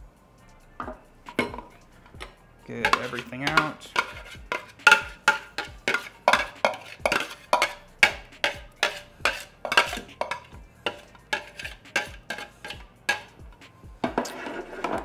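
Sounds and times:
spoon scraping plastic bowl: 0.8s - 15.0s.

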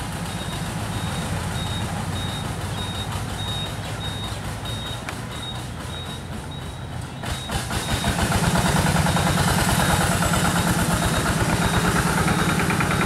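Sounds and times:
distant diesel locomotive engine: 0.0s - 13.0s
short high beeps: 0.3s - 8.2s, 10.6s - 13.0s.

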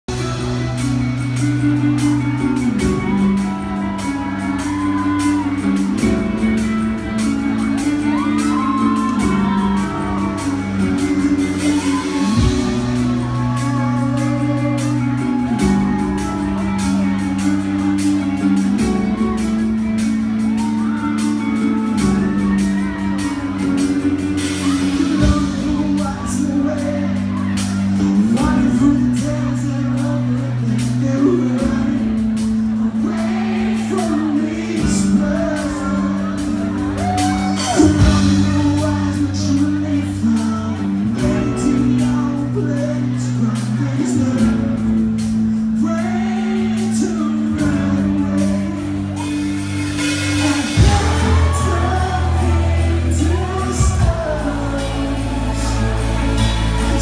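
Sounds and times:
low bass line: 0.0s - 57.0s
drum beat: 0.1s - 29.6s, 48.2s - 57.0s
woman singing: 50.3s - 57.0s.

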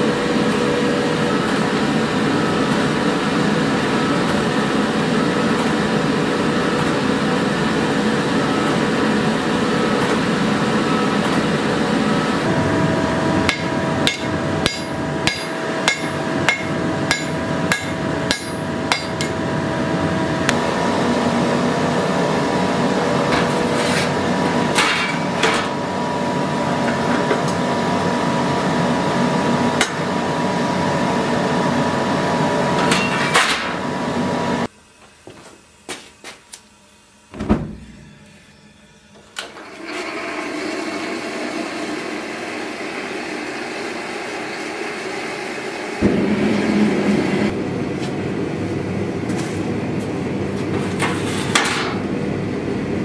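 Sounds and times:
hammer striking blade on anvil: 13.4s - 19.4s.

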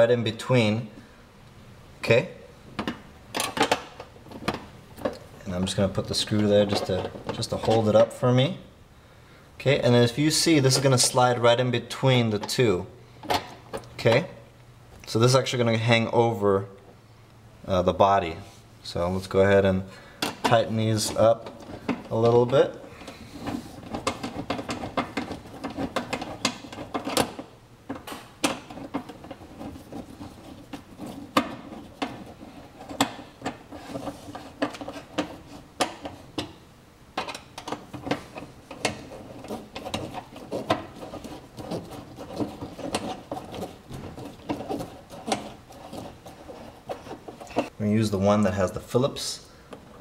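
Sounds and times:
screws tightened with hand tool clicking: 21.2s - 36.5s, 37.2s - 47.7s.

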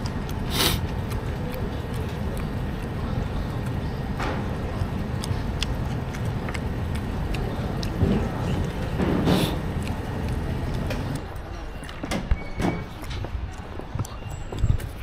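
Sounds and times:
city street rumble: 0.0s - 15.0s
chopsticks clicking and tapping: 4.5s - 8.9s.

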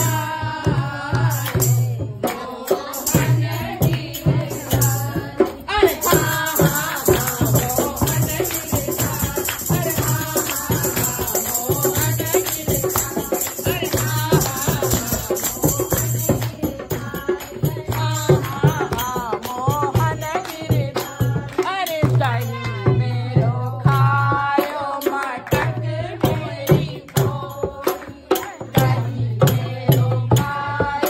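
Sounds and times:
jingling percussion: 0.0s - 31.0s
women singing together: 0.0s - 31.0s
hand-clapping: 6.3s - 16.7s, 17.3s - 19.6s, 20.4s - 21.8s.

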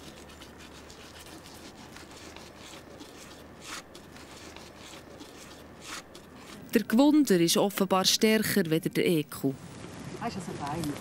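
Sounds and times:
scratchy rasp: 0.0s - 6.7s
knife skinning hide: 0.0s - 7.1s.

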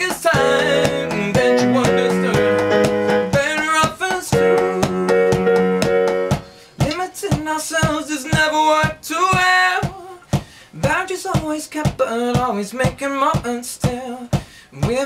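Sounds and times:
synthesizer chords: 0.0s - 6.6s
steady percussive beat: 0.0s - 12.5s.

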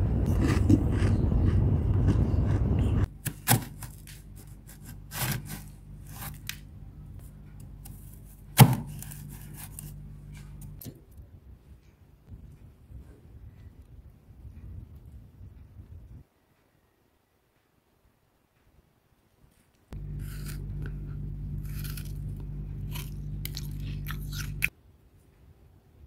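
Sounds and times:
faint steady hum: 0.0s - 26.0s
knife scraping freezer frost: 3.2s - 6.6s, 7.8s - 10.0s, 20.1s - 22.2s.

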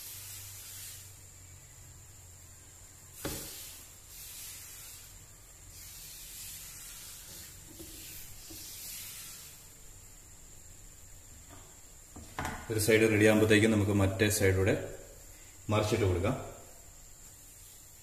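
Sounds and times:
batter sizzling in pan: 0.0s - 10.3s.

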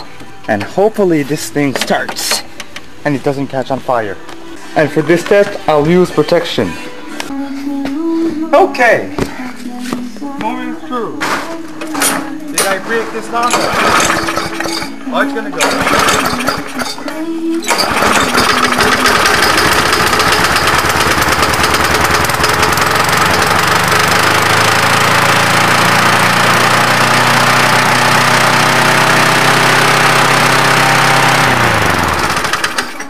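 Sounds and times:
lawn mower engine running: 12.0s - 33.0s.

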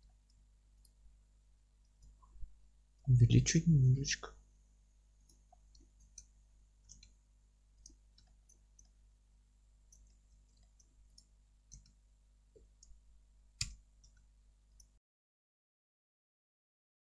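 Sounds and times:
computer mouse and keyboard clicking: 5.2s - 7.2s, 7.8s - 9.0s, 9.9s - 12.0s, 13.6s - 15.0s.

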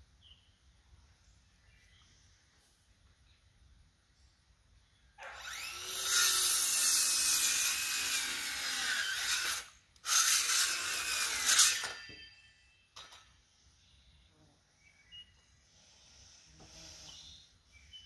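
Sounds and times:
power tool cutting wood: 5.2s - 12.1s.

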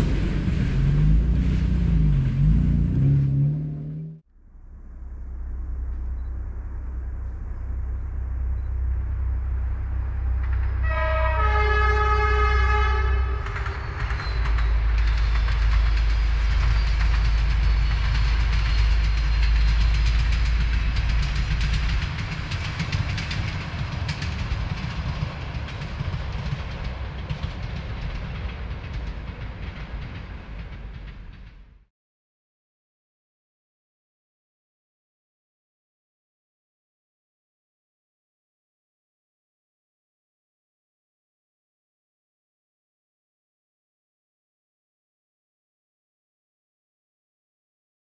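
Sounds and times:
wheels clattering on track: 0.0s - 4.1s, 12.6s - 31.8s
diesel locomotive engine rumble: 0.0s - 31.9s
train horn blast: 10.4s - 14.0s.

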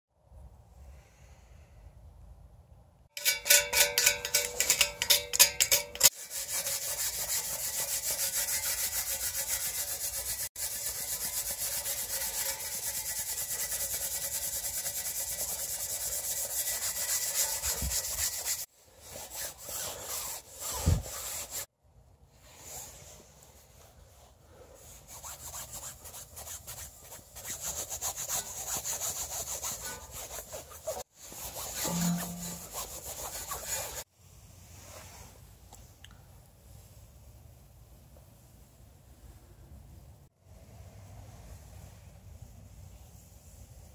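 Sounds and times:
steel wool scrubbing metal: 3.2s - 21.7s, 25.2s - 34.0s.

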